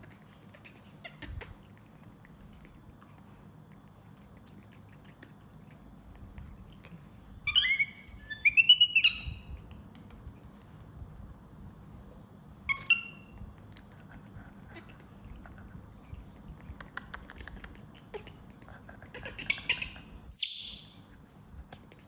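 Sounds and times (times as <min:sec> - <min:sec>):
baby monkey squealing: 0:07.4 - 0:09.5, 0:12.6 - 0:13.4, 0:19.0 - 0:21.0.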